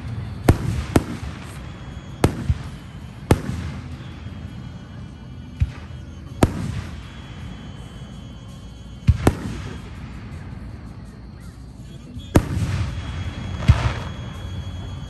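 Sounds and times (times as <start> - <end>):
fireworks bursting: 0.0 - 15.0.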